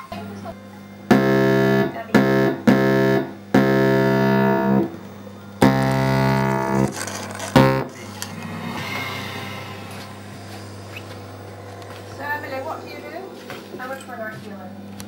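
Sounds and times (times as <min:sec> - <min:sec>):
low hum: 0:00.5 - 0:14.9
electronic keyboard notes: 0:01.0 - 0:07.9.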